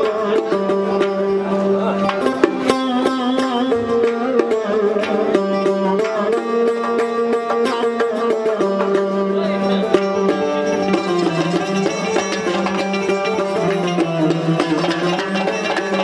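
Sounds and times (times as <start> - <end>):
plucked lutes: 0.0 - 16.0
frame drums beating: 9.8 - 16.0.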